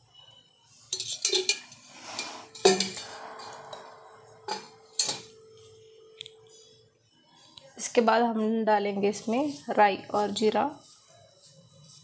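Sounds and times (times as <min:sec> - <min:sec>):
metal utensils clinking: 0:00.9 - 0:03.7, 0:04.5 - 0:05.4.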